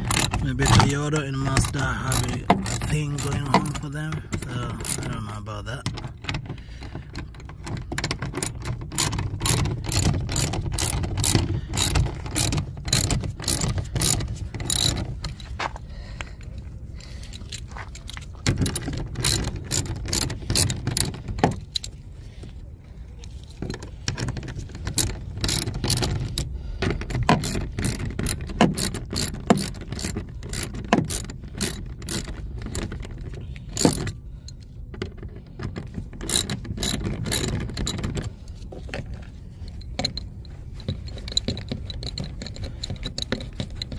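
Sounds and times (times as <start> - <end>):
ratchet wrench clicking: 0.0 - 5.2, 7.8 - 15.5, 17.3 - 22.0, 24.3 - 33.0, 33.7 - 34.6, 36.2 - 38.2.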